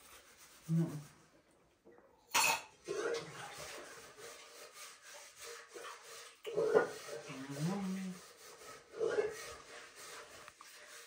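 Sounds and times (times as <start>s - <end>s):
small eating sounds: 6.4s - 8.4s.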